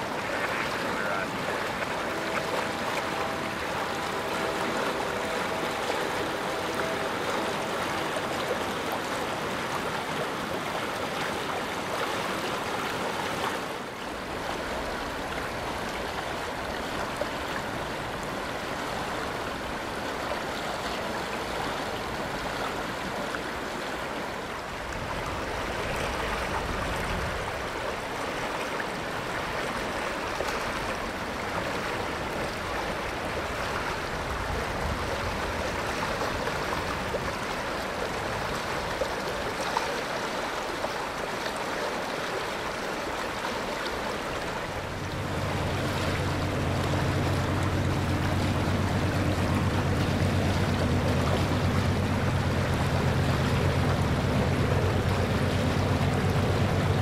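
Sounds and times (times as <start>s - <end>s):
creek water rushing over gravel: 0.0s - 57.0s
faint steady hum: 42.7s - 57.0s.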